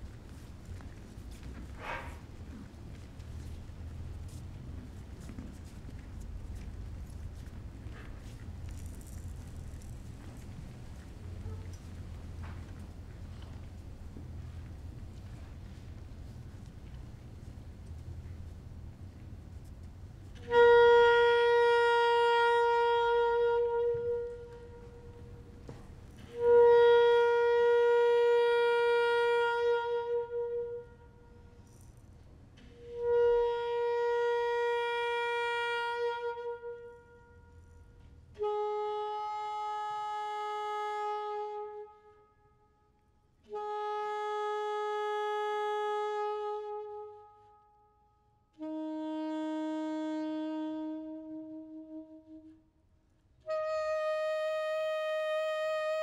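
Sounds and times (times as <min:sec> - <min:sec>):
wind instrument long notes: 0:20.3 - 0:31.7, 0:32.6 - 0:52.8, 0:53.4 - 0:56.0.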